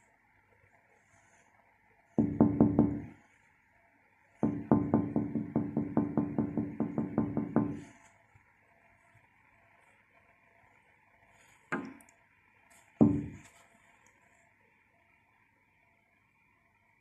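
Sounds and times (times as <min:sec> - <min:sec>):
finger knocking on window pane: 0:02.2 - 0:03.2, 0:04.4 - 0:07.9, 0:13.0 - 0:13.4.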